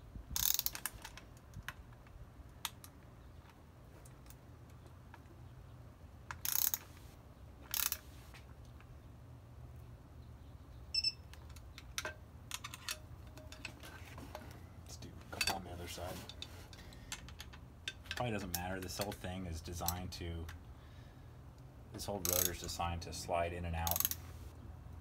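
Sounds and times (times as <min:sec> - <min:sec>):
ratchet clicking: 0:00.4 - 0:01.1, 0:06.3 - 0:06.9, 0:07.7 - 0:08.0, 0:22.2 - 0:22.6, 0:23.9 - 0:24.2
high electronic beep: 0:11.0 - 0:11.2.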